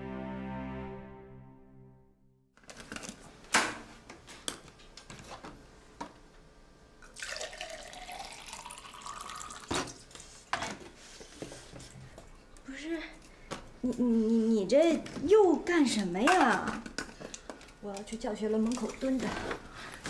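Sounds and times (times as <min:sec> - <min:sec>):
music: 0:00.0 - 0:02.5
water pouring into cup: 0:07.0 - 0:10.1.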